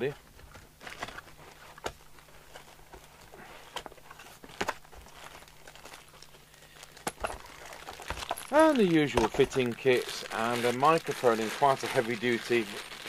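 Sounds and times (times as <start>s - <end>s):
plastic bag crinkling: 4.3s - 13.0s.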